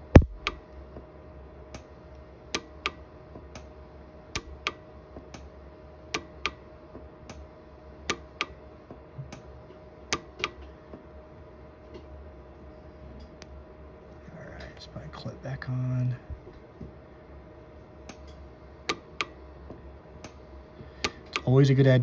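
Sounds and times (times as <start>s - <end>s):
welder pulse clicks: 0.0s - 0.7s, 2.5s - 3.0s, 4.3s - 5.5s, 6.1s - 6.6s, 8.1s - 8.6s
faint steady hum: 0.0s - 22.0s.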